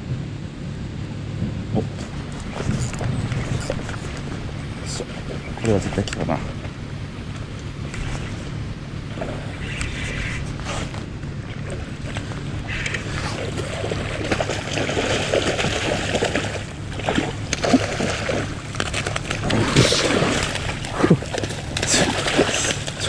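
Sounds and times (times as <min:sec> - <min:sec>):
steady low hum: 0:00.0 - 0:23.0
sea water sloshing and splashing: 0:07.4 - 0:23.0.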